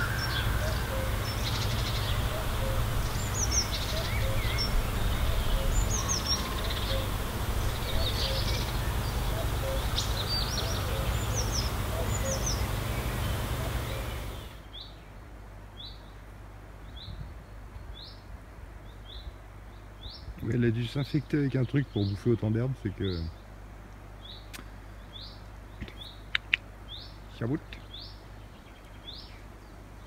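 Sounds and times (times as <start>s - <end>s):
bird short rising chirp: 0.0s - 7.1s
low steady rumble: 0.0s - 14.7s
small birds singing: 0.0s - 30.0s.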